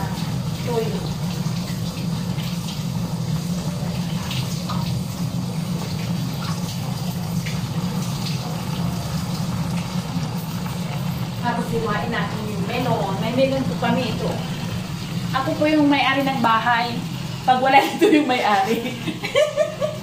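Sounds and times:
chicken sizzling in a frying pan: 0.0 - 20.0
low hum: 8.8 - 17.7.

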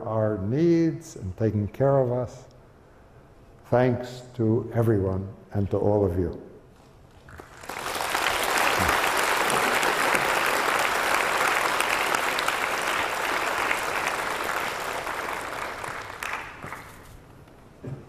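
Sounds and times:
audience applauding: 7.3 - 17.2.

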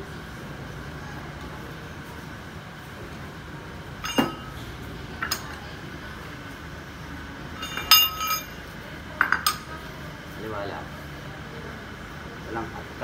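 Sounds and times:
metal tools clinking: 4.0 - 4.6, 7.6 - 8.6.

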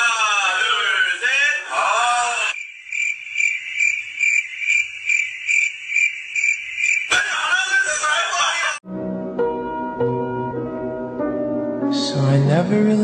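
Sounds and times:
voice: 0.0 - 2.6, 7.1 - 8.8
high chirping call: 2.6 - 7.8.

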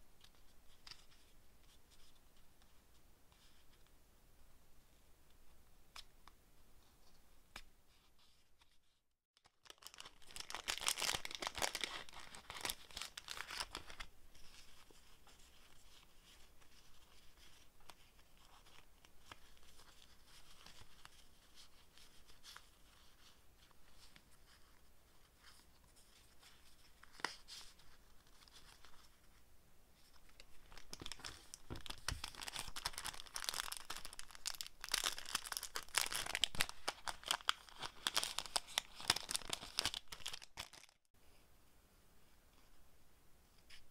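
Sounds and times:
plastic packet crinkling: 9.4 - 14.1, 30.6 - 41.0.

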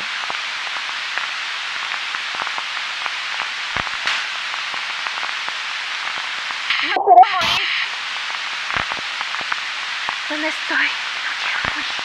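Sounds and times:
crackles and clicks: 0.0 - 12.0
recording hiss: 0.0 - 12.0
sharp pop: 1.9 - 5.6, 8.7 - 10.2.

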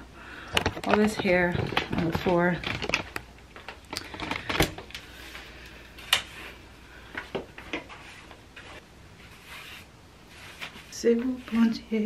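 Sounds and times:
objects clicking and knocking: 0.4 - 5.0.

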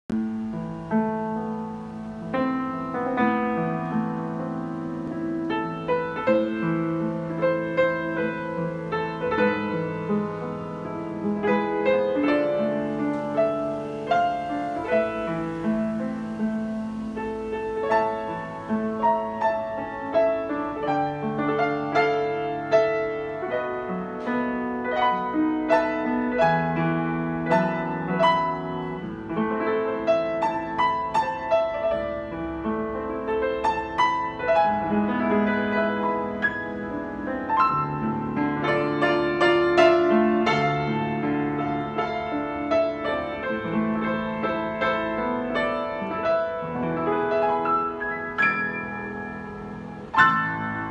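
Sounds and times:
upright piano playing: 0.1 - 50.9.

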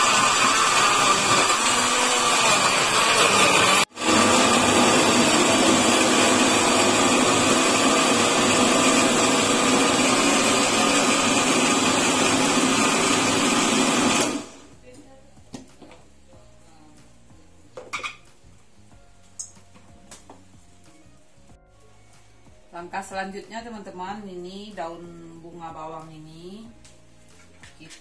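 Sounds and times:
electric blender running: 0.0 - 14.7.

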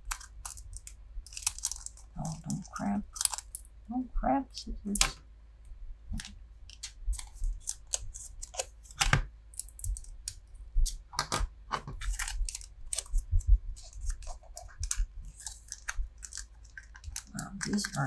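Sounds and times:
foil wrapper crinkling: 0.0 - 3.7, 6.7 - 10.2, 12.0 - 18.0.

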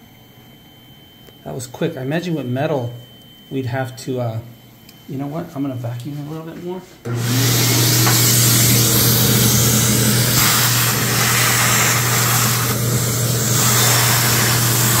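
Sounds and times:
vacuum cleaner sucking air: 7.0 - 15.0.

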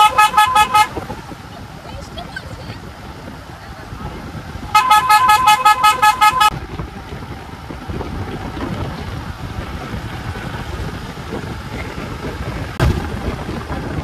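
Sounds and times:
vehicle horn short toots: 0.0 - 1.0, 4.7 - 6.6
moving car running noise: 0.0 - 14.0
wind: 0.0 - 14.0.

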